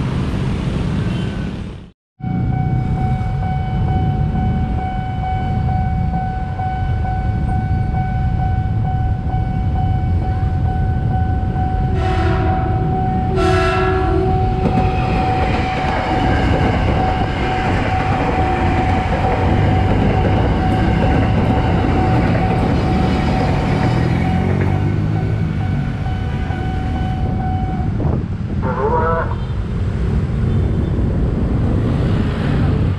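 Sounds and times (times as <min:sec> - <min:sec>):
level crossing alarm tone: 0:02.2 - 0:28.0
train horn blasts: 0:11.9 - 0:14.7
train wheel rumble and rattle: 0:14.1 - 0:28.6.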